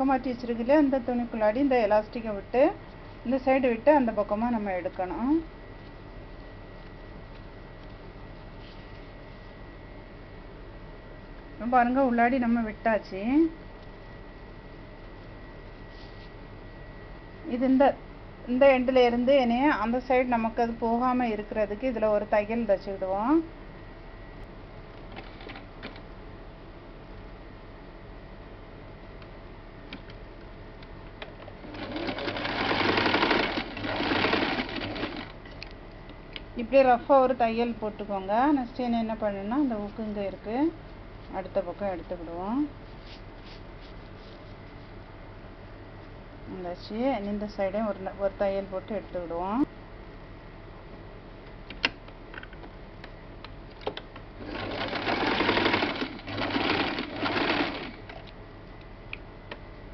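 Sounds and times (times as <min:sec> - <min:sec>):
sewing machine stitching: 0:31.6 - 0:35.3, 0:54.4 - 0:58.1.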